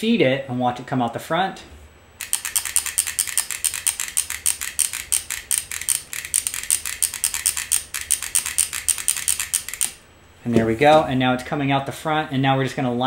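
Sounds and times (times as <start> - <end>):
soldering iron trigger clicking: 2.2 - 10.0.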